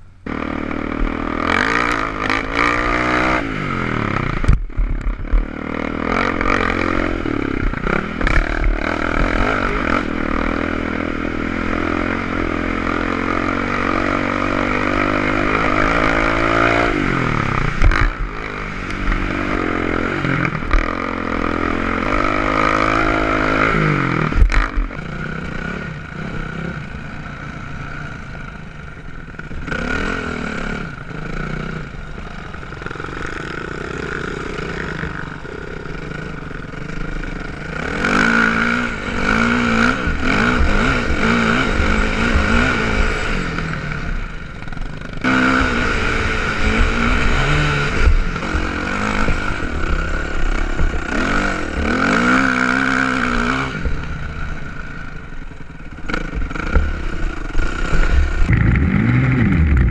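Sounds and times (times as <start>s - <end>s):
steady rush of noise: 0.0s - 59.9s
off-road vehicle engine revving: 0.2s - 59.9s.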